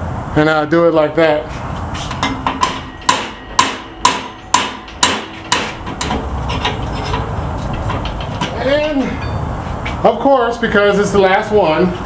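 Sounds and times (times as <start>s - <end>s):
hammer striking metal chisel: 2.2s - 7.3s.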